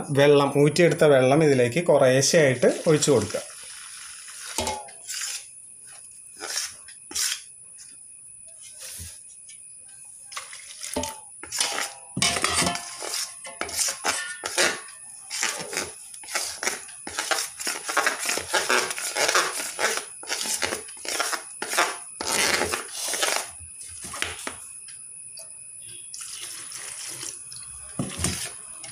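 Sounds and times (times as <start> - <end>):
metal spoon scraping a steel bowl: 3.0 - 5.5, 10.4 - 23.4.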